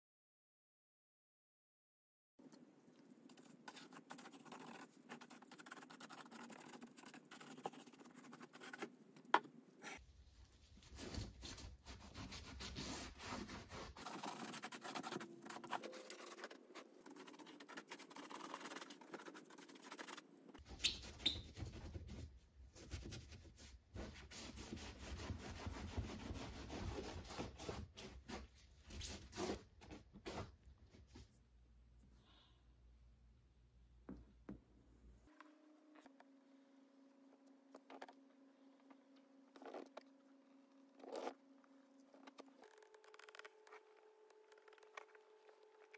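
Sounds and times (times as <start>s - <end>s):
paintbrush bristles scratching: 3.0s - 8.9s, 10.8s - 29.6s.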